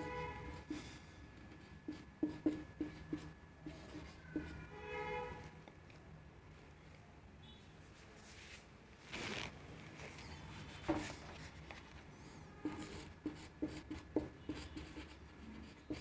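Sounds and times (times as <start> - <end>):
marker squeaking on whiteboard: 1.4 - 5.1, 10.2 - 16.0.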